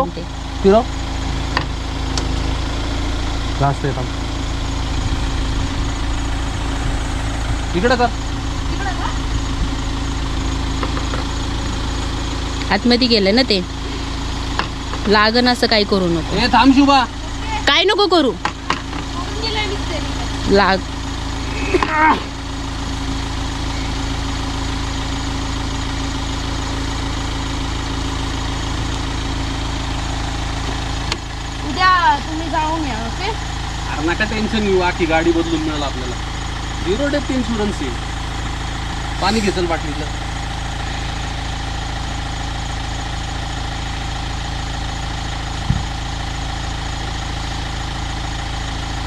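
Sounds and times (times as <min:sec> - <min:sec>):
car engine idling: 0:00.0 - 0:49.0
short knock: 0:45.6 - 0:45.9.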